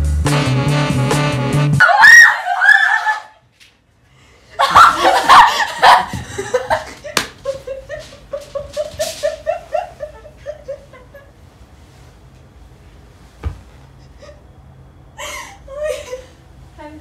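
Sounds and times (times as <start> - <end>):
girls shrieking laughter: 1.8 - 3.4, 4.6 - 6.9
hand smack: 7.2 - 7.4.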